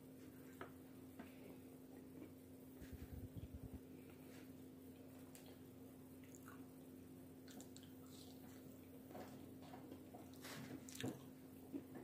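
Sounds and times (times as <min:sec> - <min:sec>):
faint steady hum: 0:00.0 - 0:12.0
person chewing: 0:04.9 - 0:09.0.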